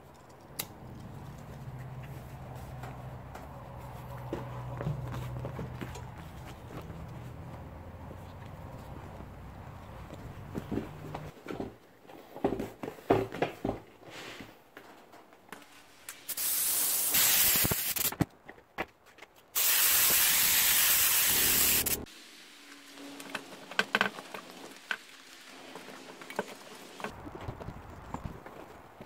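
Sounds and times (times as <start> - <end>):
aerosol can spraying: 16.3 - 18.1, 19.6 - 22.1.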